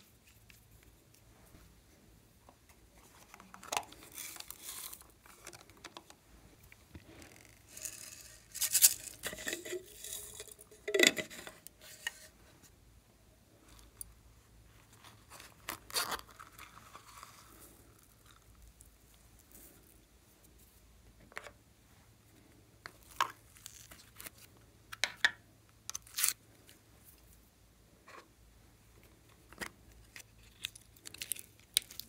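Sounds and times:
hands tearing and crunching: 25.9 - 26.4, 30.1 - 32.0.

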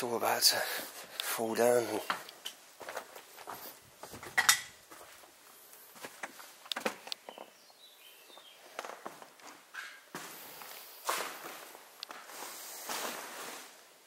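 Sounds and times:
footsteps on littered floor: 2.0 - 7.6, 8.2 - 14.0
bird chirping: 6.9 - 9.0.

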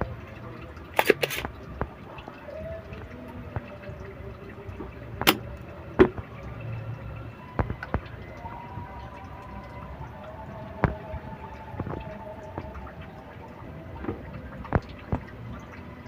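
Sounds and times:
sharp clicks and taps: 5.2 - 5.4.

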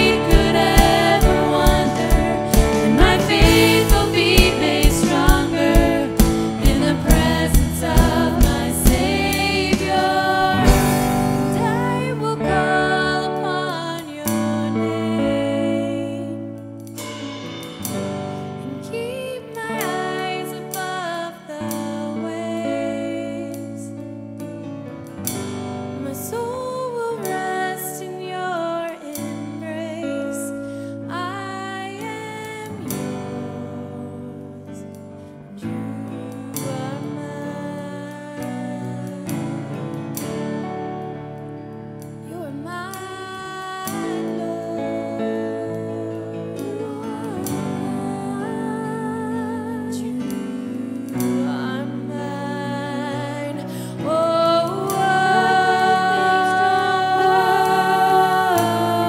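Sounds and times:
steady drum beat: 0.0 - 11.6
band accompaniment: 0.0 - 12.0, 17.0 - 18.7
worship song singing: 0.0 - 16.4, 42.3 - 59.0
held chords: 0.0 - 26.9, 30.6 - 59.0.

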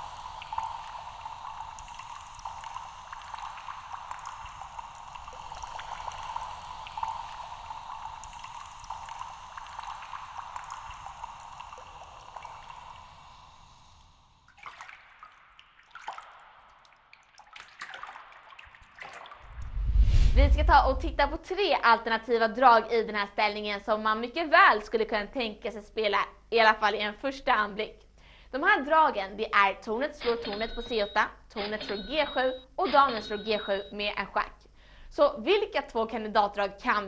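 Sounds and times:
water trickling: 0.0 - 19.6
water dripping: 0.0 - 19.7, 30.1 - 34.2.

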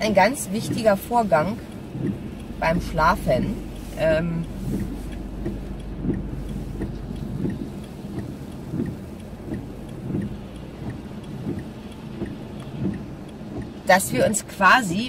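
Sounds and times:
road and engine rumble: 0.0 - 15.0
faint quick ticking: 3.6 - 13.9.

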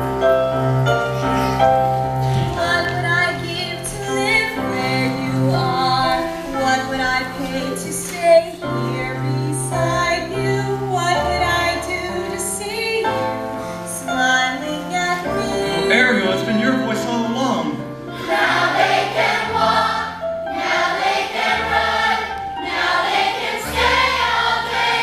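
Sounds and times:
instrumental accompaniment: 0.0 - 25.0
woman singing: 2.4 - 15.9.

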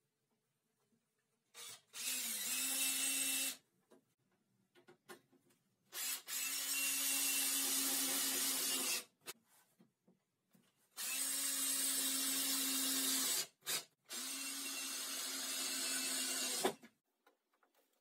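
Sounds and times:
cordless drill drilling into metal: 1.6 - 3.6, 6.0 - 9.1, 11.0 - 16.8.

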